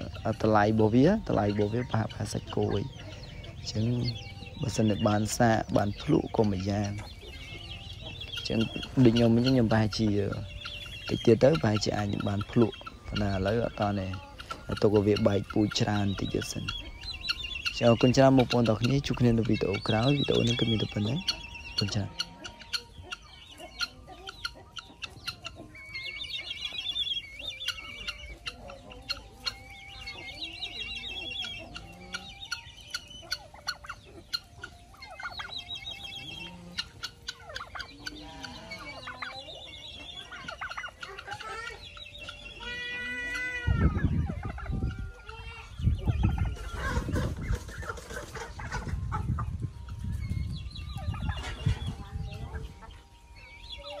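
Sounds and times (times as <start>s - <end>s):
poultry clucking and chattering: 0.0s - 54.0s.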